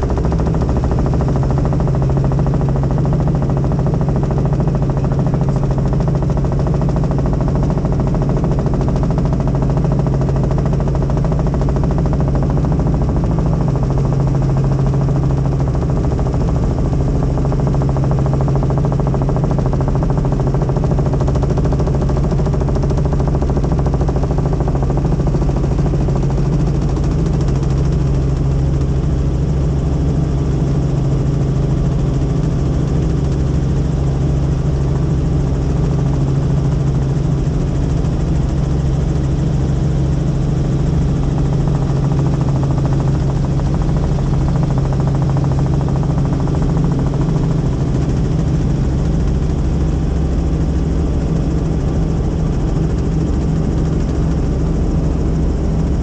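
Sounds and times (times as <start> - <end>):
helicopter engine and rotor: 0.0 - 56.0.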